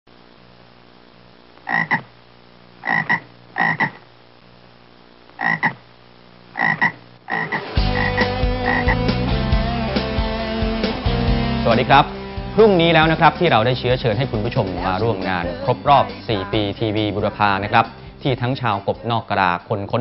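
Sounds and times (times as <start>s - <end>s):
frog croaking: 1.6s - 2.2s, 2.8s - 4.1s, 5.3s - 5.9s, 6.5s - 9.1s
guitar music: 7.5s - 19.7s.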